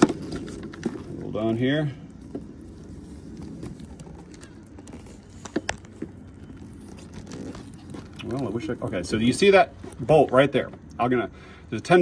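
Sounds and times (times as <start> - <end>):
low background noise: 0.0 - 12.0.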